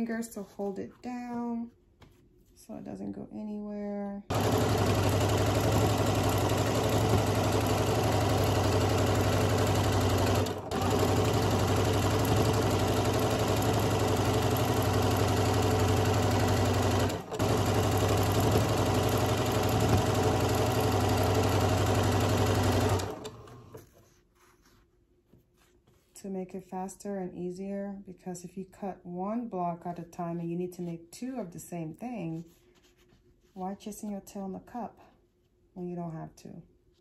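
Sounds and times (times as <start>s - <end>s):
sewing machine stitching: 4.3s - 23.8s.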